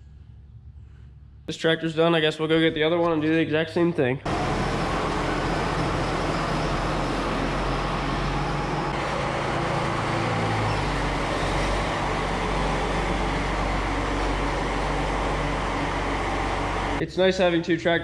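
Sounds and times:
tractor diesel engine running: 0:04.3 - 0:17.5.

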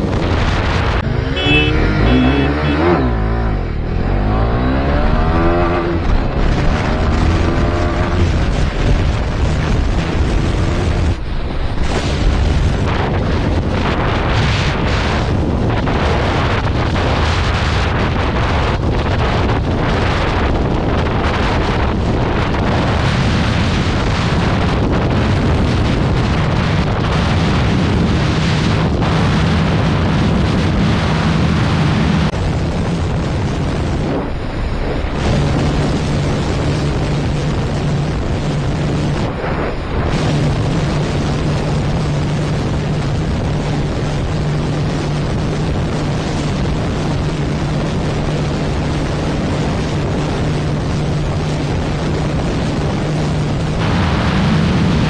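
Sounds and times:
motorcycle engine at high revs: 0:00.0 - 0:11.2, 0:11.8 - 0:55.0
wind rushing over microphone: 0:00.0 - 0:55.0.

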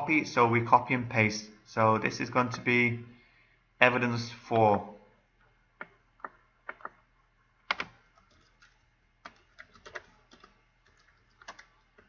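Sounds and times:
computer keyboard key clicks: 0:07.7 - 0:12.0.

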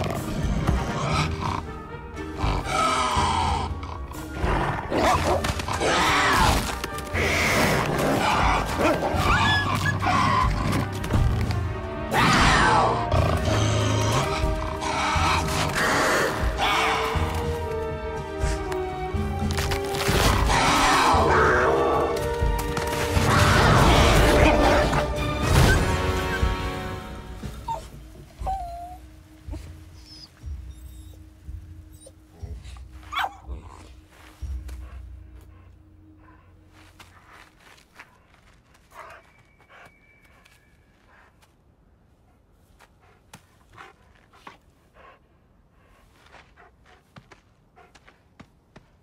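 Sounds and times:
animals growling and snarling: 0:00.0 - 0:27.8
film music: 0:00.0 - 0:48.2.

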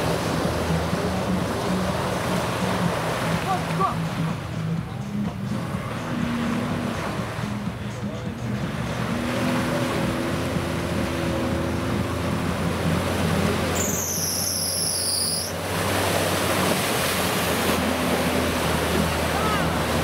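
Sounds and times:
engine running under load: 0:00.0 - 0:20.0
water splashing: 0:00.0 - 0:20.0
high whistling squeal: 0:13.8 - 0:15.6.

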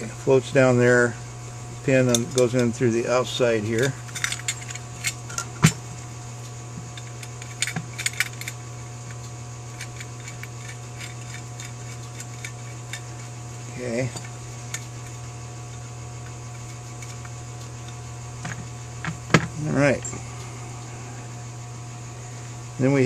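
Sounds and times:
steady low hum: 0:00.0 - 0:23.0
small metal parts clinking: 0:03.6 - 0:05.8, 0:06.9 - 0:19.4.

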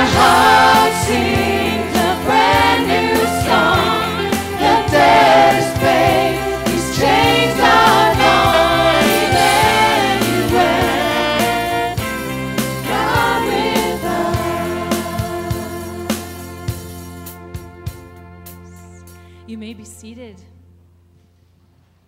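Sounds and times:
singers singing together: 0:00.0 - 0:16.4
drum hits: 0:00.0 - 0:18.2
worship band playing: 0:00.0 - 0:20.3.

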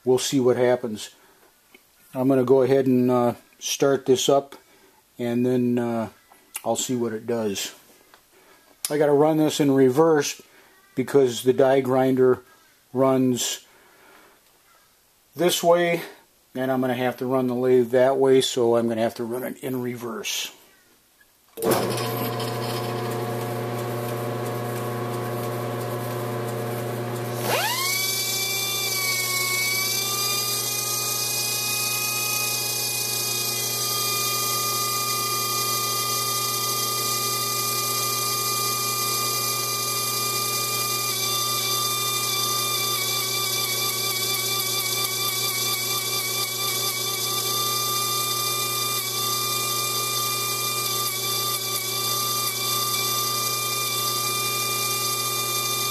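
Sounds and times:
die grinder whining: 0:21.6 - 0:55.9
lathe motor humming: 0:21.6 - 0:55.9.

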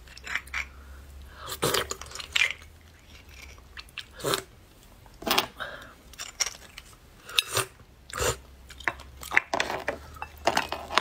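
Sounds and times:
metal utensils scraping bones: 0:00.0 - 0:00.8, 0:08.8 - 0:11.0.

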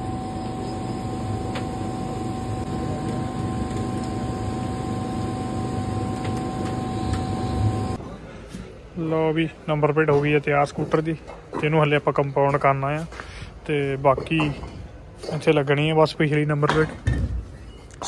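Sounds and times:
machine rushing and humming: 0:00.0 - 0:08.0
steady whining tones: 0:00.0 - 0:08.0.

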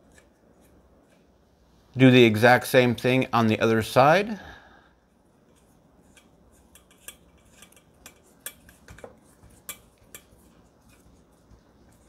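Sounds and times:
screwdriver clicking and scraping: 0:05.5 - 0:11.0.

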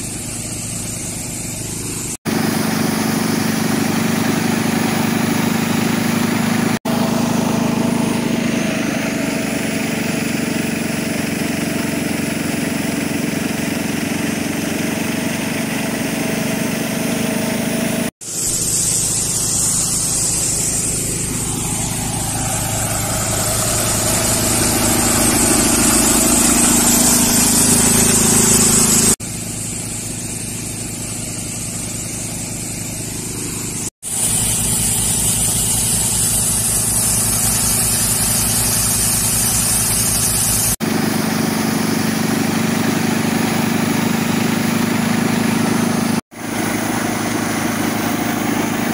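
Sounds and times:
air compressor running: 0:00.0 - 0:48.9
tractor diesel engine chugging: 0:00.0 - 0:48.9
compressed air hissing from hose: 0:18.2 - 0:29.2, 0:33.3 - 0:40.8.

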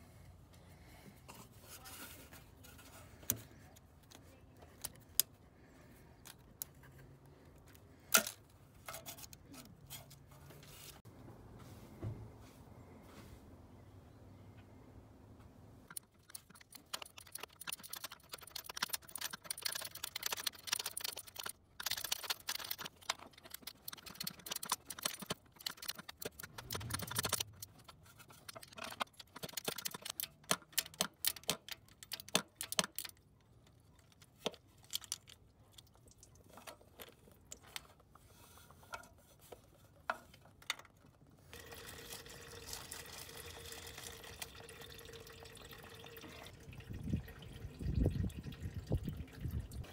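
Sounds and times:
coolant trickling: 0:15.9 - 0:30.2, 0:35.2 - 0:36.8, 0:41.5 - 0:49.9.

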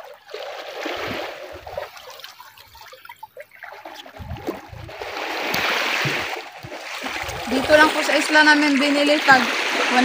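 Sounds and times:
waves washing among rocks: 0:04.2 - 0:10.0.

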